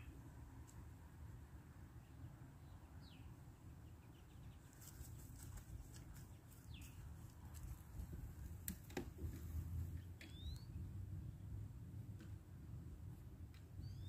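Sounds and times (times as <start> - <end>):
high falling bird chirps: 10.2 - 10.8.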